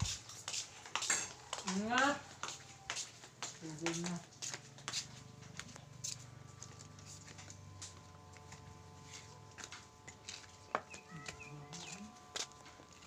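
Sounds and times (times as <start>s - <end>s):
footsteps in sandals: 0.0s - 13.0s
low steady hum: 5.3s - 13.0s.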